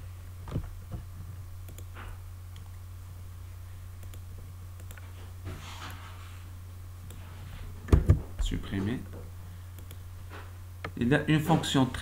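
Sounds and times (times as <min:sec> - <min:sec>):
steady low hum: 0:00.0 - 0:12.0
computer mouse and keyboard clicks: 0:09.8 - 0:10.0.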